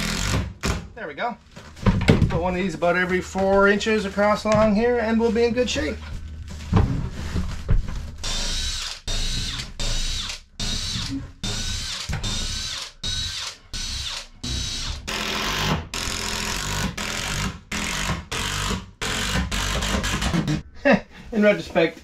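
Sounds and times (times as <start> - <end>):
cordless drill driving screws: 8.2 - 20.3.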